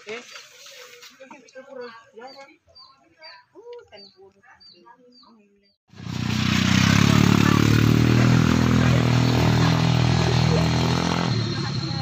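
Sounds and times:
engine running: 5.9s - 12.0s.

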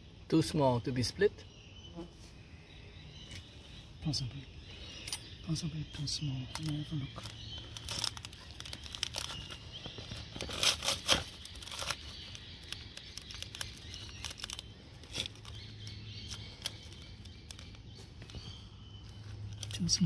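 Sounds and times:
crackling and tearing: 6.5s - 18.4s.

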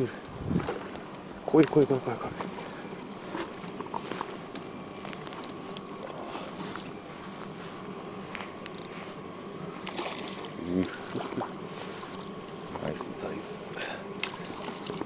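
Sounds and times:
water splashing: 9.8s - 12.1s.

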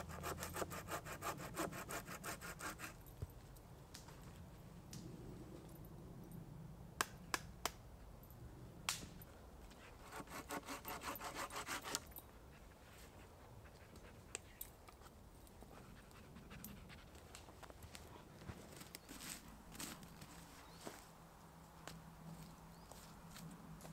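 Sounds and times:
hand saw cutting branch: 0.0s - 3.0s, 10.0s - 12.1s.

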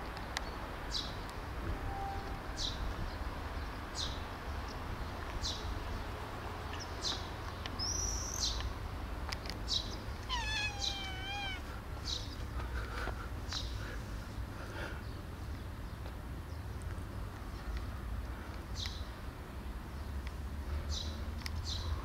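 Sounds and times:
cat meowing: 10.3s - 11.8s.

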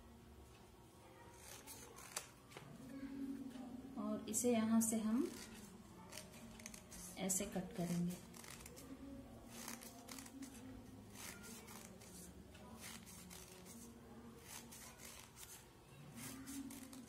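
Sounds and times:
scissors snipping paper: 9.5s - 15.6s, 16.2s - 17.0s.

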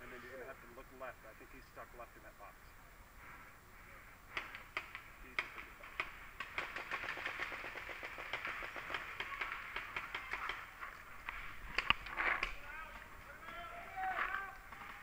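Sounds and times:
paintball markers firing: 4.3s - 15.0s.

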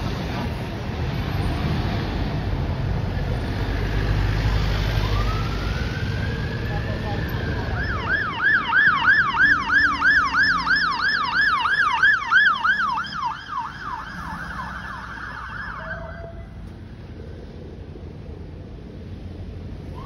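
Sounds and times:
fire engine siren yelping: 4.5s - 16.7s.

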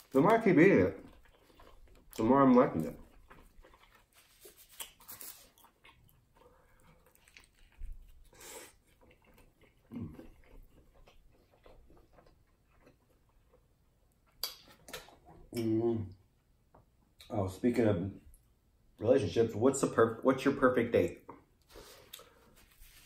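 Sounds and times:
person chewing: 0.8s - 15.7s.

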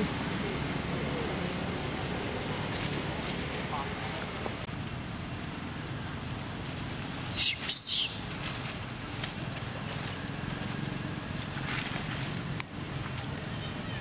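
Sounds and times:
monkey squealing: 7.3s - 8.2s.

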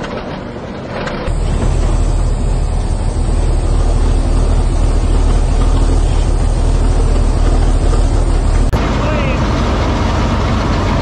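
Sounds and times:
shovel engine droning: 0.9s - 11.0s.

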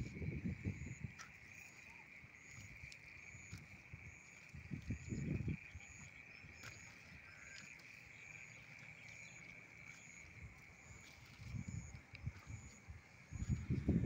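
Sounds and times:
low rumble on microphone: 0.0s - 1.2s, 10.4s - 14.0s
insects chorus: 0.0s - 14.0s.

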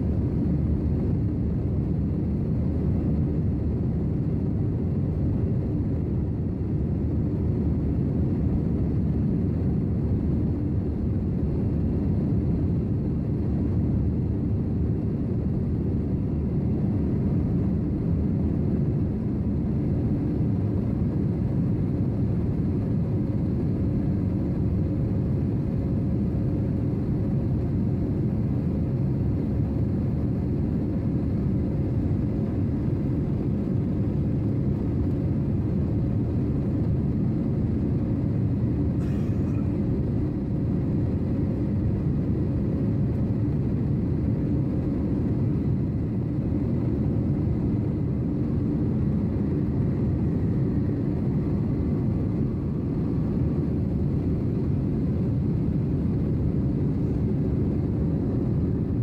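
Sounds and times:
airliner engine and airflow rumble: 0.0s - 59.0s
faint even hum: 38.3s - 41.1s.

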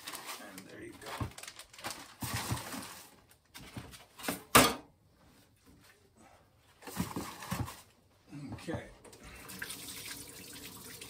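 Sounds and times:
kitchen items clattering: 0.0s - 4.9s, 6.8s - 7.9s.

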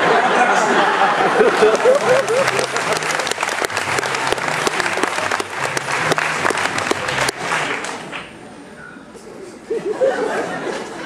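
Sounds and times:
audience applauding: 0.8s - 8.4s.

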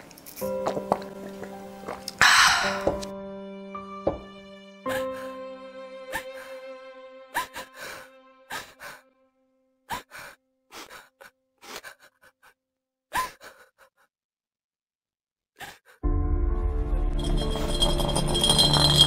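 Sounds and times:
sad background music: 0.3s - 12.2s, 16.0s - 19.0s
girl crying and sobbing: 6.1s - 6.7s.

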